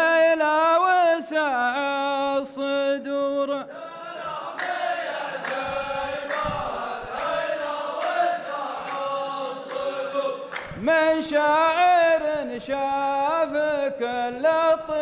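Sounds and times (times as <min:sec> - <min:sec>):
men chanting in chorus: 0:03.5 - 0:15.0
sharp hand claps: 0:04.5 - 0:11.0.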